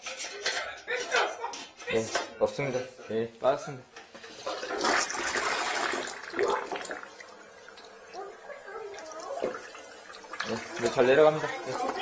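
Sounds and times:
toilet flushing: 0:04.3 - 0:12.0.

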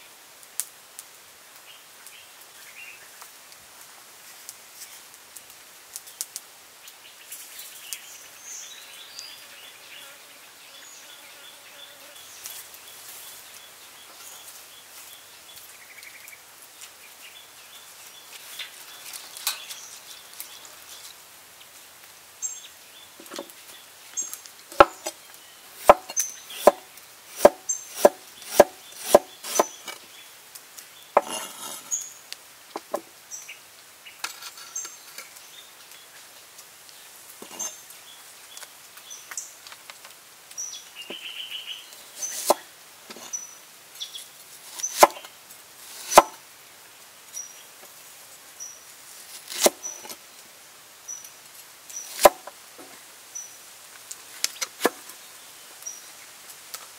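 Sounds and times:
knife chopping on wooden board: 0:24.8 - 0:25.1, 0:25.8 - 0:29.8, 0:31.2 - 0:31.8, 0:45.0 - 0:45.2, 0:46.0 - 0:46.4.

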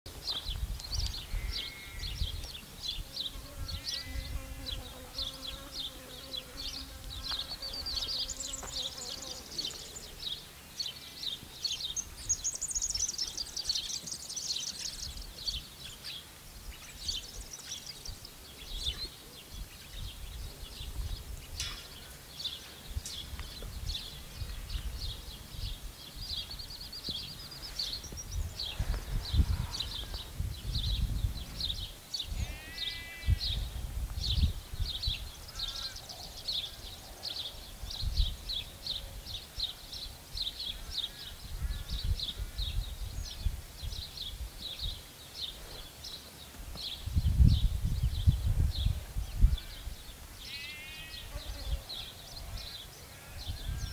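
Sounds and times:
wind gusting on microphone: 0:00.1 - 0:05.7, 0:16.6 - 0:22.1, 0:22.8 - 0:37.0, 0:37.6 - 0:45.1, 0:46.7 - 0:50.2, 0:51.4 - 0:53.9
small birds chirping: 0:00.1 - 0:53.9.

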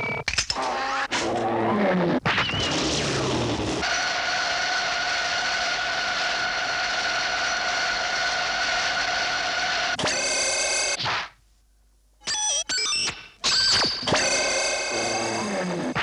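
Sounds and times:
cartoon jet engine whine: 0:13.7 - 0:16.0.

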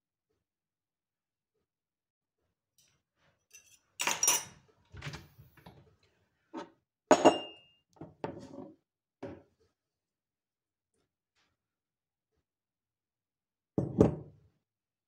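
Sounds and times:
dishes and utensils clattering: 0:03.5 - 0:05.8, 0:06.6 - 0:07.6.

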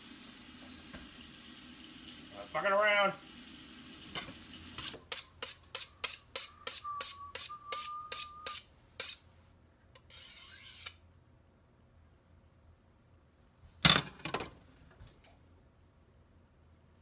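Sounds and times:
knife scraping on honing rod: 0:04.8 - 0:09.2, 0:10.0 - 0:11.0.

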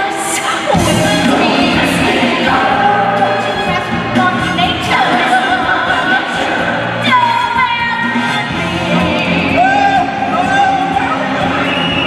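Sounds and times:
full backing track: 0:00.0 - 0:12.0
people singing long sliding notes: 0:00.2 - 0:07.4.

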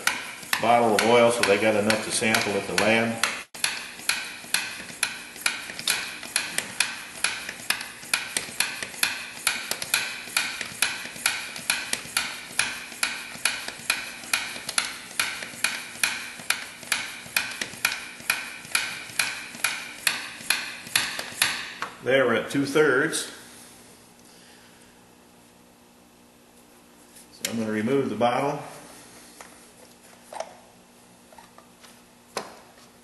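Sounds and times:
hand vacuum pump clicking: 0:00.0 - 0:21.3.

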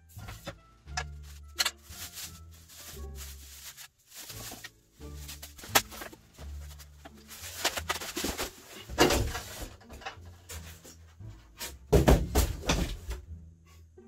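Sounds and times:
styrofoam scraping and rubbing: 0:00.1 - 0:11.9
plastic wrapping crinkling: 0:00.2 - 0:09.9.

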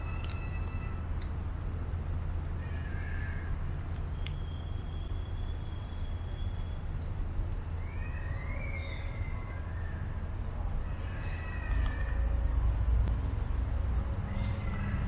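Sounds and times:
birds chirping: 0:00.0 - 0:12.9, 0:14.0 - 0:15.0
steady low rumble: 0:00.0 - 0:15.0.

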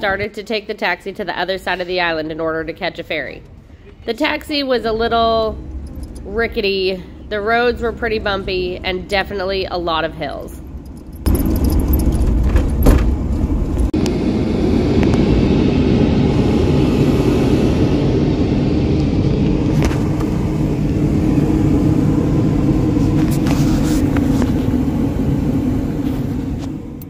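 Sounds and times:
van engine and road rumble: 0:01.4 - 0:27.0
knocks and rattles: 0:10.7 - 0:13.9.

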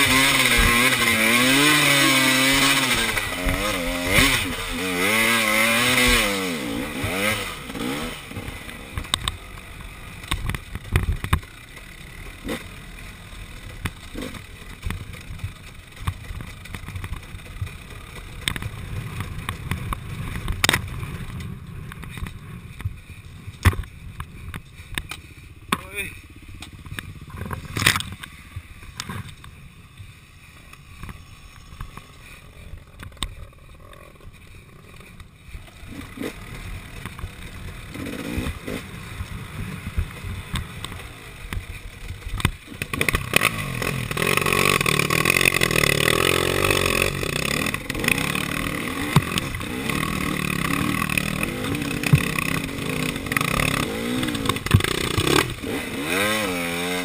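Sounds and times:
two-stroke dirt bike engine revving: 0:00.0 - 0:23.1, 0:31.0 - 0:57.0.

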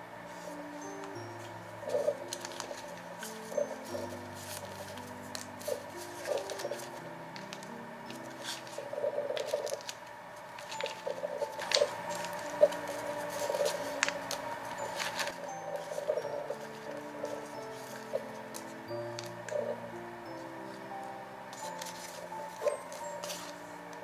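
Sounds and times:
soft background music: 0:00.0 - 0:24.0
paper rustling: 0:00.3 - 0:24.0.

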